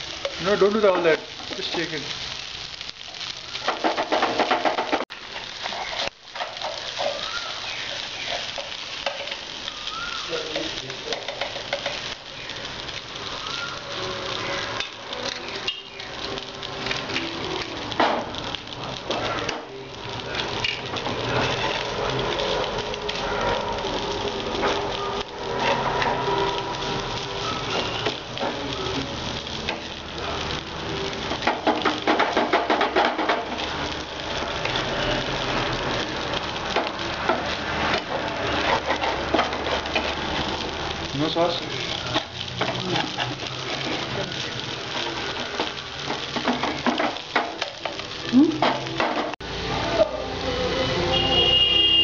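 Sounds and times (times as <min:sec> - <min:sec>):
noodles sizzling in frying pan: 0:00.0 - 0:52.0
spatula scraping a pan: 0:03.8 - 0:09.5, 0:20.7 - 0:21.9, 0:25.4 - 0:27.0, 0:37.2 - 0:40.5
metal spatula scraping pan: 0:20.7 - 0:21.9, 0:25.4 - 0:27.0, 0:37.4 - 0:40.2.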